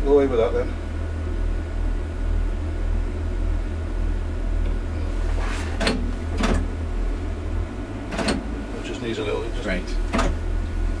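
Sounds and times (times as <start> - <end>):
diesel engine drone: 0.0 - 11.0
hissing clicks of controls: 4.6 - 6.7, 8.1 - 10.5.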